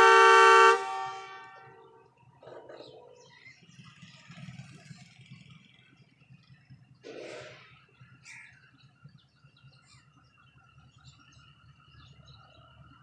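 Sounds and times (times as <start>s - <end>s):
diesel locomotive rumble: 0.0s - 13.0s
birds chirping: 1.4s - 13.0s.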